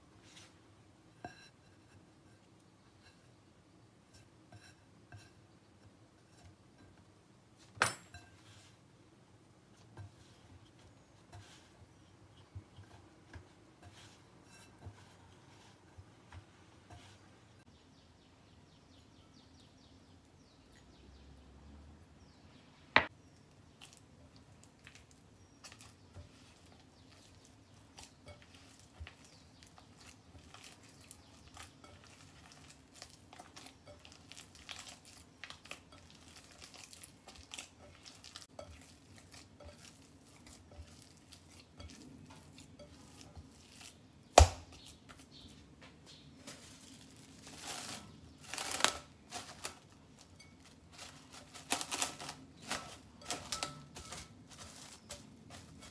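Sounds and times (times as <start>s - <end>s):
glass clink: 7.8s - 8.4s
hands kneading sticky dough: 8.3s - 17.7s, 23.0s - 55.9s
cling film crinkling: 46.5s - 55.9s.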